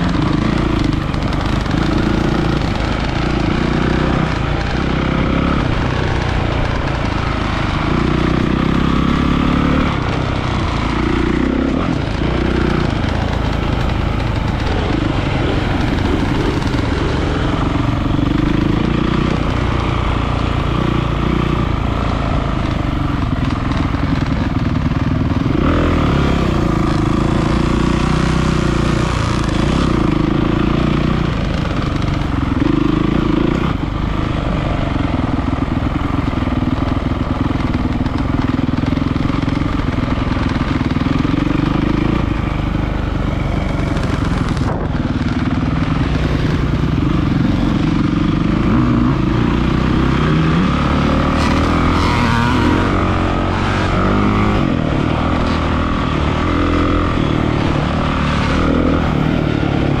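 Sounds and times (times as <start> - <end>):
dirt bike engine revving: 0.0 - 60.0.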